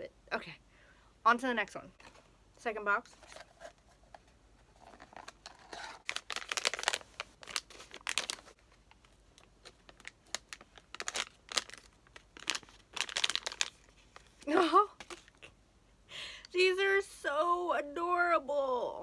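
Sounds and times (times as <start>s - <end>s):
packaging crinkling and tearing: 4.8s - 15.4s.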